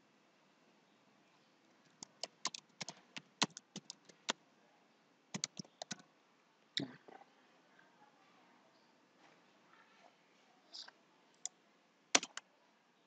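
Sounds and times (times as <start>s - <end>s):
computer keyboard typing: 1.9s - 4.4s, 5.3s - 6.0s, 12.2s - 12.4s.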